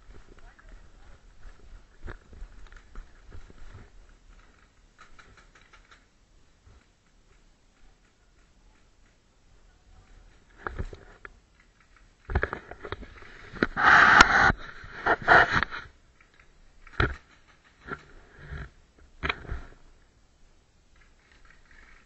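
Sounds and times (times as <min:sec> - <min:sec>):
rustling against camera: 0:00.0 - 0:20.0
sharp clicks: 0:04.3 - 0:06.1.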